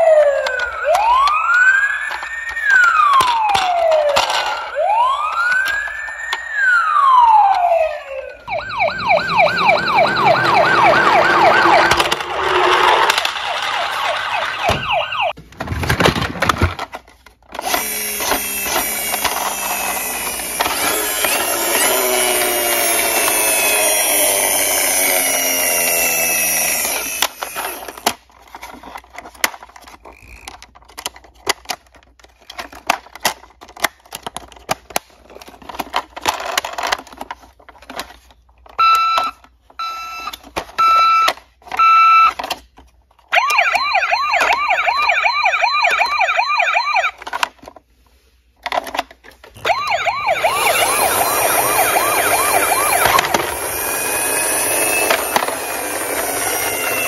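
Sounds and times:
toy whirring: 0.0s - 14.9s, 17.5s - 42.9s, 48.7s - 57.0s
warbling toy siren: 0.0s - 15.4s, 17.6s - 28.1s, 38.7s - 42.4s, 43.3s - 47.3s, 49.6s - 57.0s.

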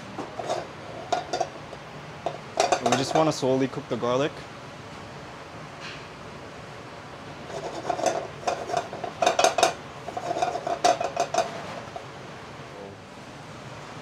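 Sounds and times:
spatula scraping a frying pan: 0.2s - 1.5s, 7.4s - 12.0s.

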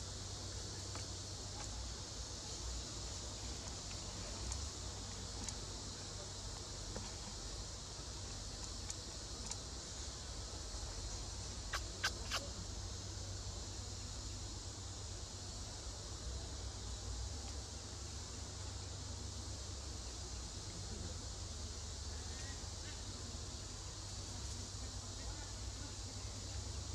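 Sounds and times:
insects droning: 0.0s - 26.9s
sharp snaps: 8.6s - 9.6s, 11.6s - 12.5s.

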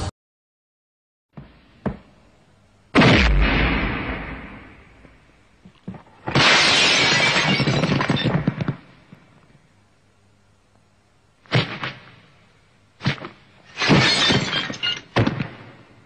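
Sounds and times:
sharp hit: 3.0s - 5.2s
glass pane smashing: 6.2s - 8.7s, 13.7s - 15.4s.

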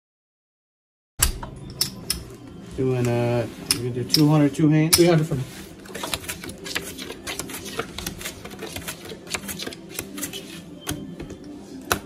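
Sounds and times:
playing cards clicking and snapping: 6.0s - 11.0s.

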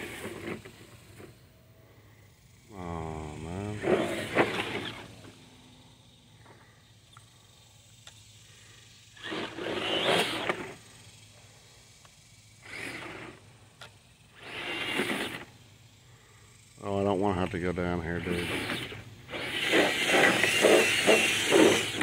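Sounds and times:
electric motor whirring: 0.0s - 1.4s, 2.4s - 22.0s
wheels spinning in mud and water: 0.0s - 1.4s, 18.2s - 22.0s.

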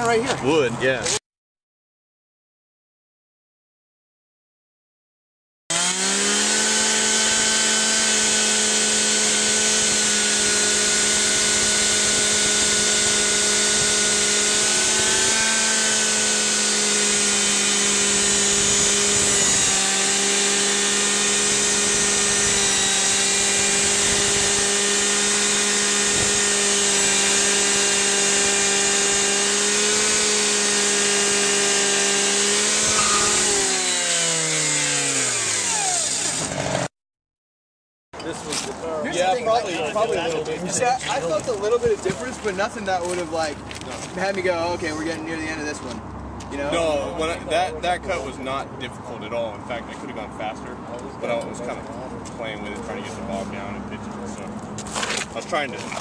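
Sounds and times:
rescue saw cutting at full throttle: 5.7s - 36.9s.

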